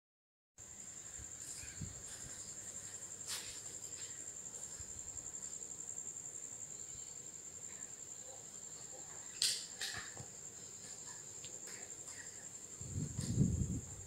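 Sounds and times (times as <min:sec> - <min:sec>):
cricket trilling: 0:00.6 - 0:14.0.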